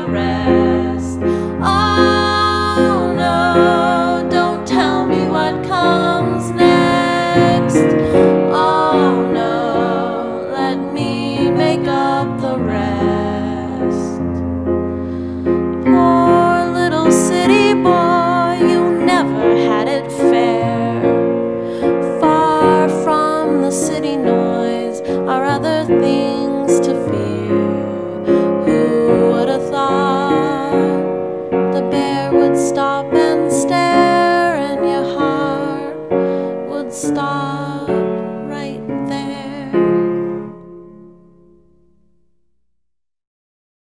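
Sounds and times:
woman singing: 0.0s - 14.4s, 15.8s - 40.4s
piano: 0.0s - 42.9s.

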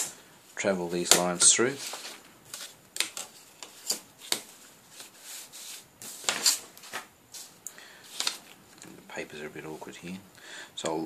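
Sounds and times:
plastic sliding on paper: 1.7s - 8.5s.

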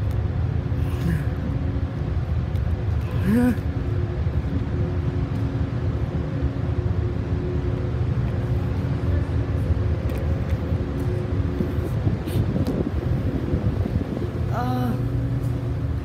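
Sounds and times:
ship engines rumbling: 0.3s - 16.0s.

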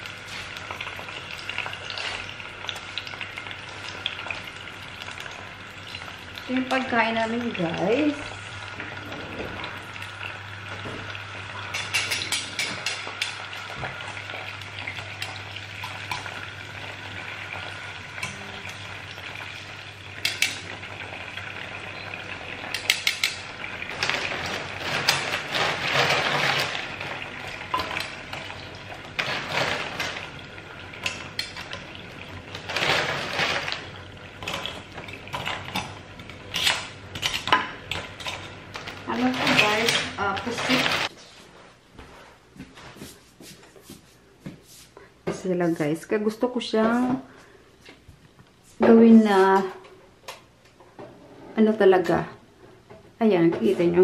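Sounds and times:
food sizzling in oil: 0.0s - 41.1s.

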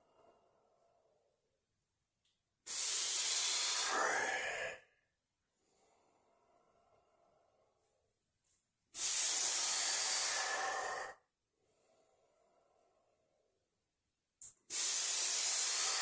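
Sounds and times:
man breathing forcefully: 2.7s - 4.8s, 9.0s - 12.8s, 14.6s - 16.0s.

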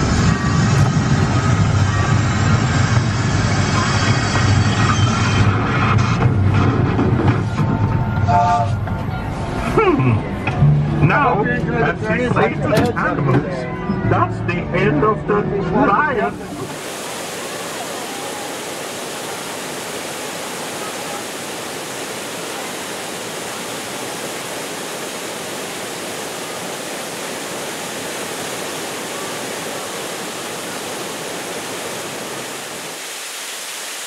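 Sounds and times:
waterfall rushing: 16.2s - 34.0s.

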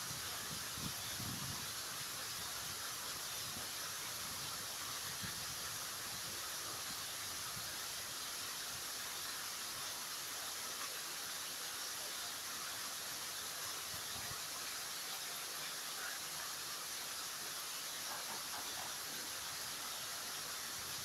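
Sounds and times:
wind rumble on microphone: 0.0s - 1.9s, 3.4s - 6.4s
wind hiss: 0.0s - 21.0s.

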